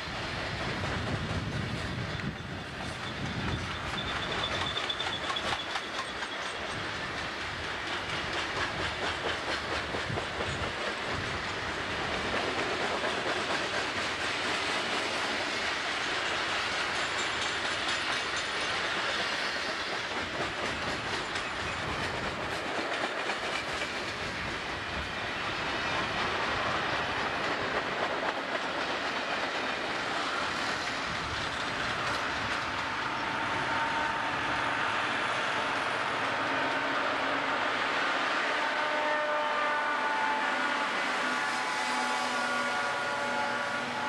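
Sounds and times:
steel wheels on rail: 0.0 - 44.0
wheels clicking over rail joints: 0.5 - 25.1, 25.8 - 33.2.

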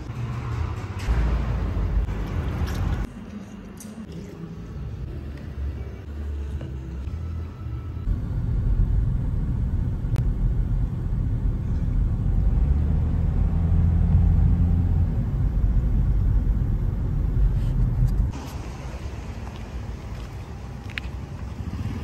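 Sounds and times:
car cabin road rumble: 8.0 - 22.0.

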